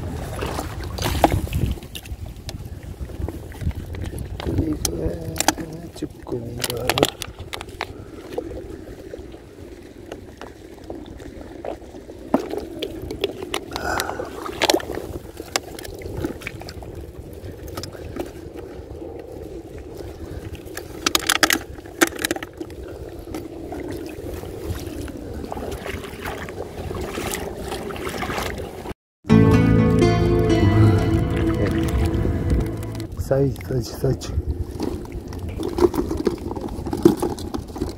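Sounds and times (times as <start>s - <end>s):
water sloshing around legs: 19.7s - 28.9s.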